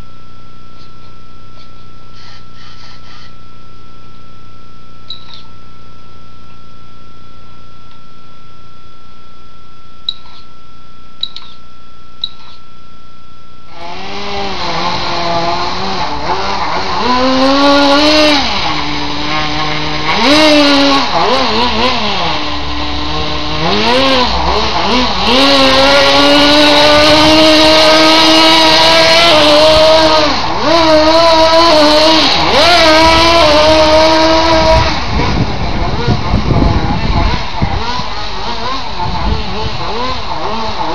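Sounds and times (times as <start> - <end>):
faint steady hum: 0.0 - 40.8
electric motor and gears whining: 9.8 - 40.9.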